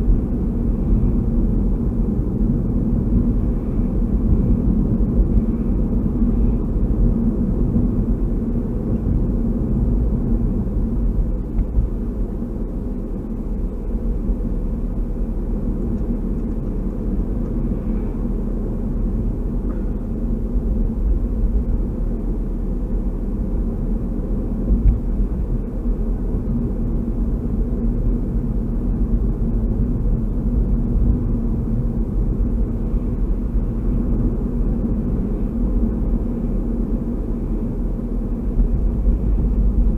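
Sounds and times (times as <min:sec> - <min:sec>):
car interior road noise: 0:00.0 - 0:39.9.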